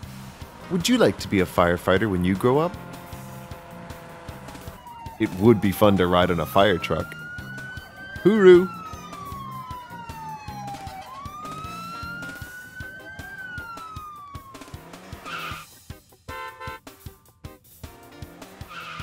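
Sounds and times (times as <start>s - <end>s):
fire truck siren wailing: 0.0s - 15.8s
background music with beat: 6.8s - 18.8s.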